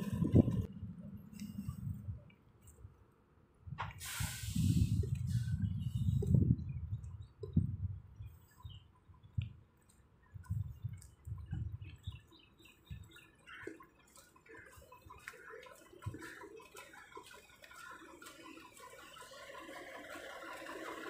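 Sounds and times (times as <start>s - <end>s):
faint footsteps on asphalt: 3.8s - 21.0s
high chirps and ticks: 6.1s - 20.9s.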